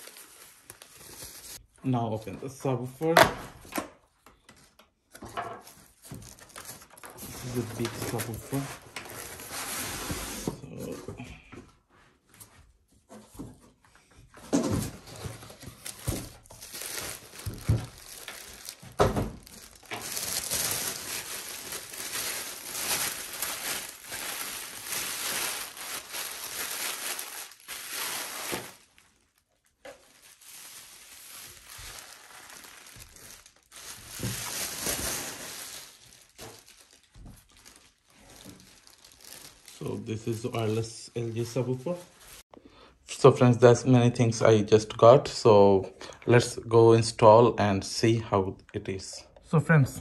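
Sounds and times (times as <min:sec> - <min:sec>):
plastic wrapping crinkling: 0:00.0 - 0:01.6, 0:05.6 - 0:10.0, 0:15.0 - 0:42.5.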